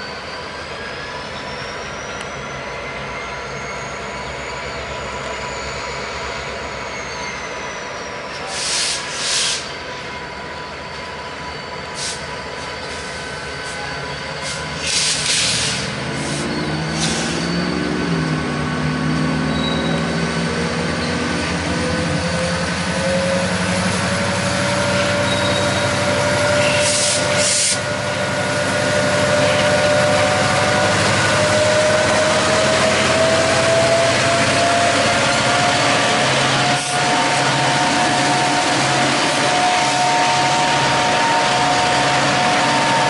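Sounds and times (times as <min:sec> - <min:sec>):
diesel locomotive engines droning: 0:00.0 - 0:43.0
short air hisses: 0:08.5 - 0:09.7, 0:14.4 - 0:16.4, 0:26.6 - 0:27.8.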